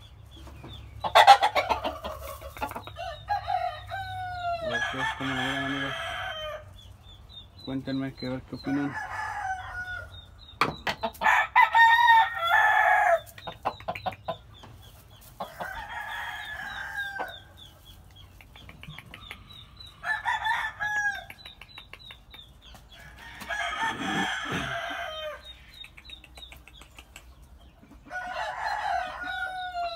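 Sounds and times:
roosters crowing: 0:01.0 - 0:06.9, 0:08.6 - 0:10.4, 0:11.0 - 0:13.7, 0:15.2 - 0:17.8, 0:19.2 - 0:21.4, 0:22.9 - 0:25.8, 0:27.9 - 0:29.9.

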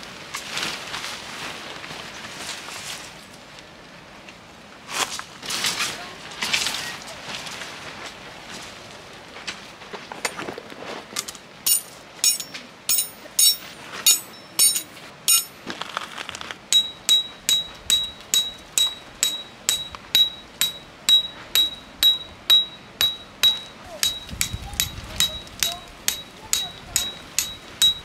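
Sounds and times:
hammer striking metal peg: 0:11.7 - 0:15.6, 0:16.7 - 0:28.0.

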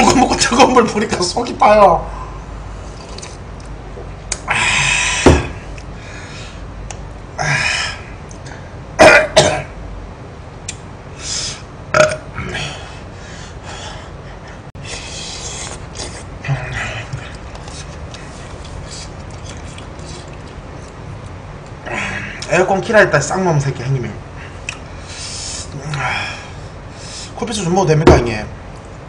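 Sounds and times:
man's harsh breathy exhalations: 0:04.5 - 0:06.7
man's burp-like grunts: 0:11.9 - 0:12.8.

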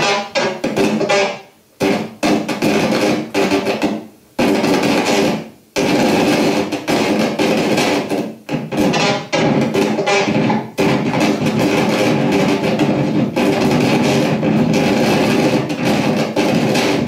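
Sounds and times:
harsh distorted electronic noise: 0:00.0 - 0:17.0.

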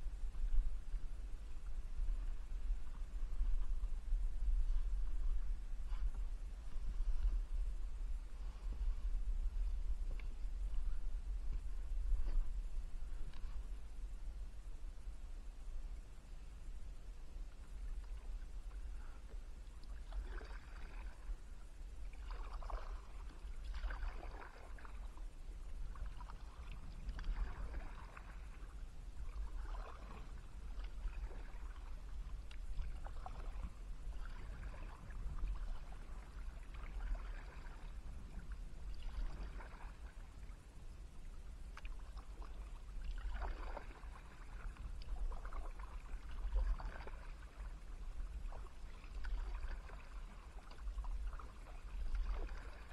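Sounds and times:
steady low rumble: 0:00.0 - 0:52.9
paddle splashing in water: 0:17.9 - 0:21.4, 0:22.0 - 0:40.6, 0:41.7 - 0:52.9.

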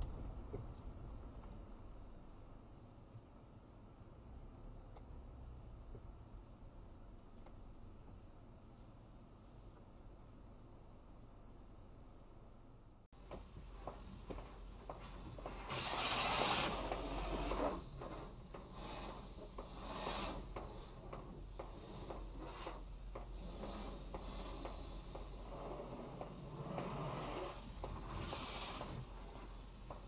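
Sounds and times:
pressure wand spraying water: 0:14.9 - 0:30.0.

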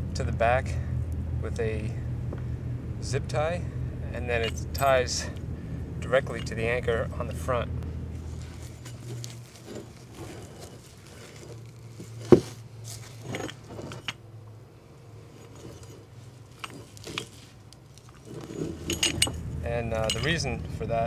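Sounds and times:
handling knocks and rattles: 0:04.3 - 0:05.4, 0:06.0 - 0:06.8, 0:08.2 - 0:14.3, 0:15.3 - 0:20.8.

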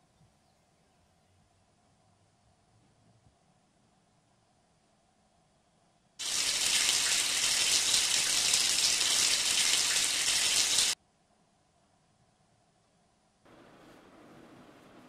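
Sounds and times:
water running over hands: 0:06.2 - 0:11.0.

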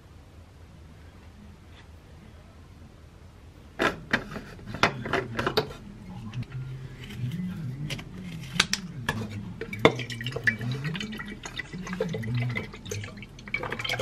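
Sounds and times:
milk pouring into plastic cup: 0:09.2 - 0:14.0.

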